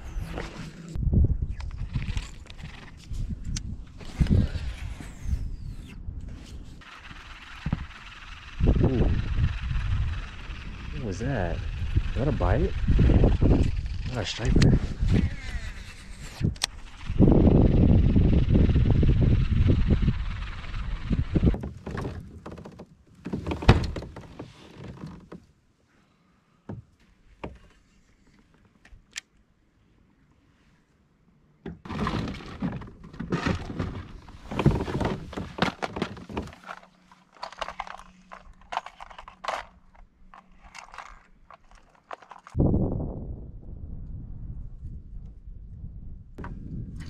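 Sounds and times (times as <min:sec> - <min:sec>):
fishing gear knocking and rattling: 0:31.8 - 0:42.6.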